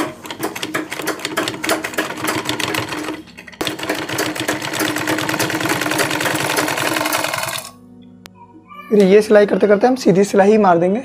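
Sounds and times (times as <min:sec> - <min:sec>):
sewing machine running: 0:00.0 - 0:07.8.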